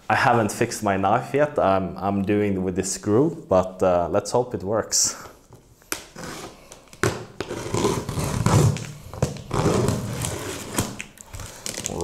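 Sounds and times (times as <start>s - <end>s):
packing tape ripping: 5.9s - 12.0s.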